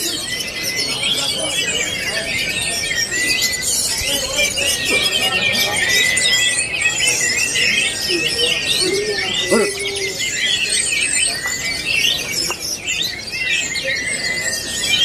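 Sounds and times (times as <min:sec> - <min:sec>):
thrushes singing: 0:00.0 - 0:15.0.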